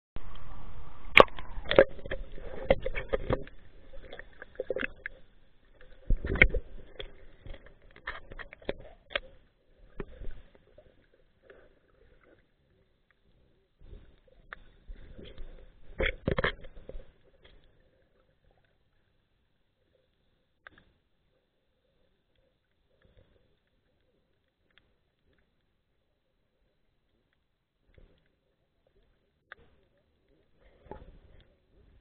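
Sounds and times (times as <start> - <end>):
muffled underwater water sloshing: 0.2 - 32.0
sharp underwater clicks and knocks: 1.1 - 5.2, 5.8 - 10.5, 14.5 - 17.7.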